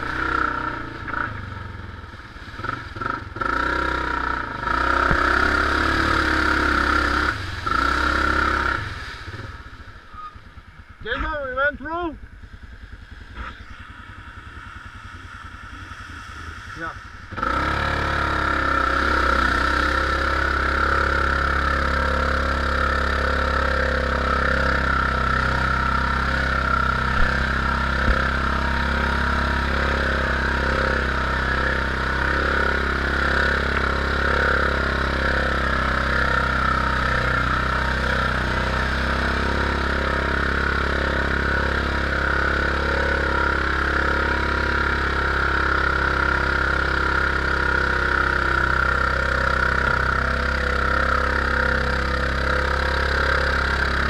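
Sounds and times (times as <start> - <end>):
atv engine running: 0.0 - 54.0.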